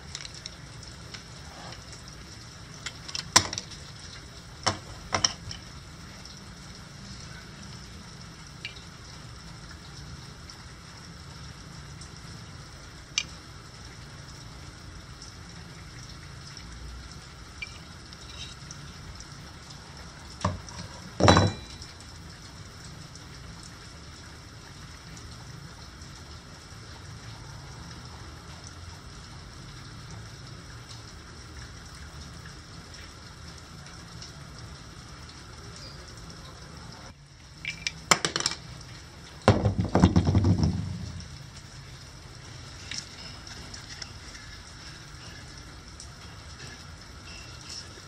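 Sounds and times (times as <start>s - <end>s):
knocks with metallic ring: 21.2s - 21.9s.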